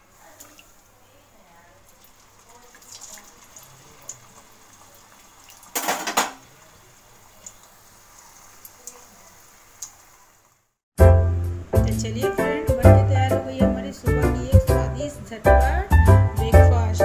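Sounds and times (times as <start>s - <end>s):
hot oil sizzling with pops: 1.8s - 10.6s
metal kitchenware clatter: 5.8s - 6.4s.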